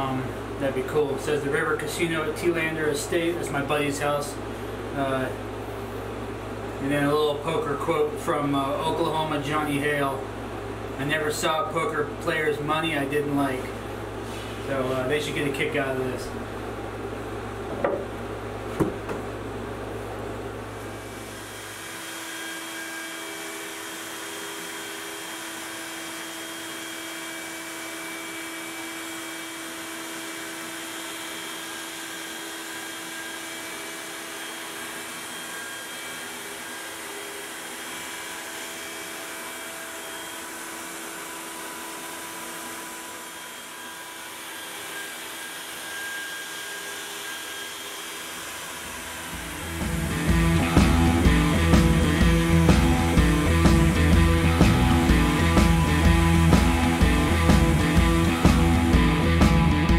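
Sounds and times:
knocks of wooden boards: 18.7 - 19.3
router whining: 20.9 - 59.9
dust extraction drawing air: 48.8 - 59.9.

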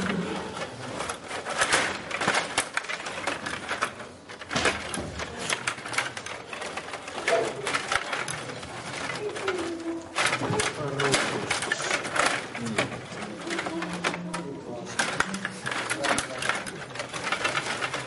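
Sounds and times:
table hockey rods clicking and clattering: 0.0 - 18.0.

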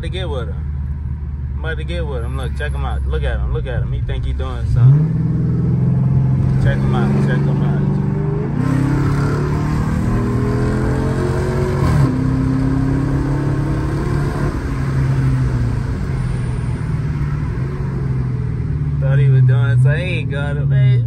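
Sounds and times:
car engine accelerating: 3.1 - 21.0.

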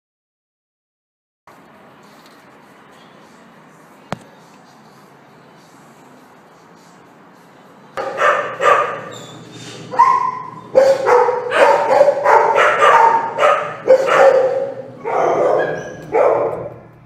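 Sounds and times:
dog barking: 8.0 - 9.2, 9.9 - 16.9.

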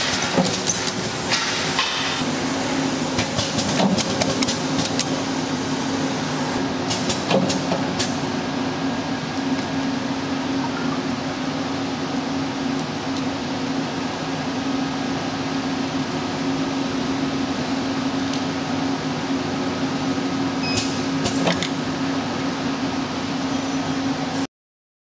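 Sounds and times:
machine humming: 0.0 - 6.7.

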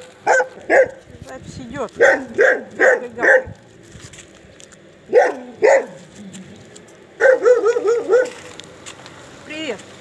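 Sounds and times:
dog barking: 0.2 - 1.0, 2.0 - 3.6, 5.1 - 6.0, 7.2 - 8.4.

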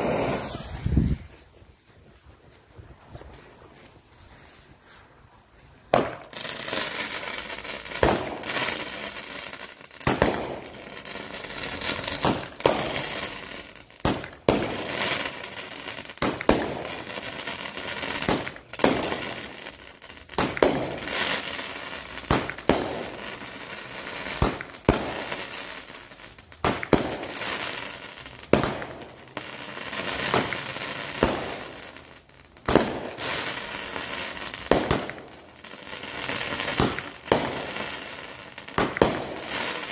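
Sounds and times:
firework bangs: 0.0 - 1.4, 5.9 - 25.9, 26.5 - 39.9
firework crackling: 0.0 - 39.9.

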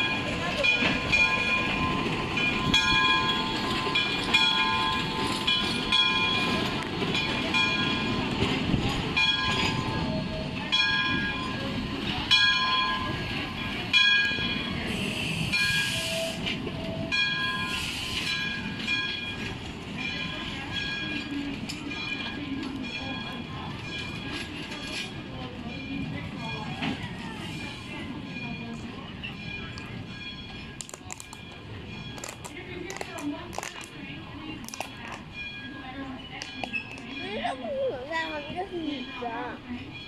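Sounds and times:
steam train rumbling: 0.0 - 40.0
train bell ringing: 0.0 - 40.0
short steam hisses: 14.9 - 16.5.

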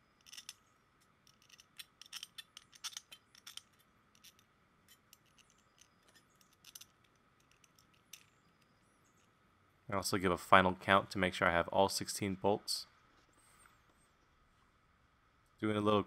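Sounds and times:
metal bolts clicking and clinking: 0.2 - 8.7.

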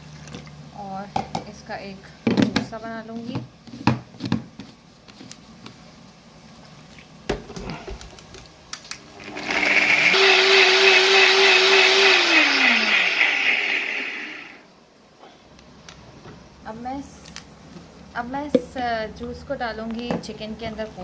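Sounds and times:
electric blender whirring: 9.1 - 14.7.

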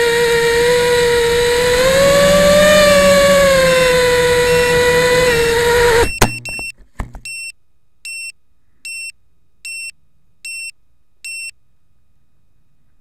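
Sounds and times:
drone motors whining: 0.0 - 7.2
short high electronic beeps: 6.0 - 7.5.

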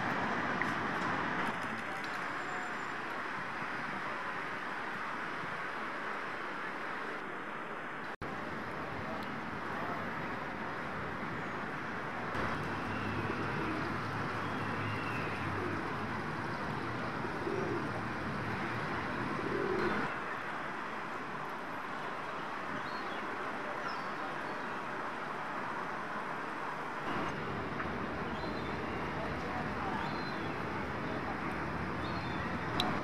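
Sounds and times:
city background hum: 0.0 - 33.0
pigeons cooing: 13.0 - 14.1, 15.2 - 16.0, 17.0 - 18.0, 19.2 - 20.1.

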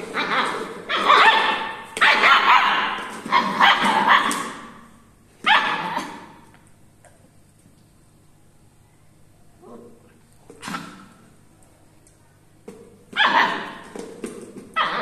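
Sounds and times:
puppy barking and yipping: 0.1 - 4.8, 5.4 - 6.4, 13.2 - 13.9, 14.8 - 15.0.

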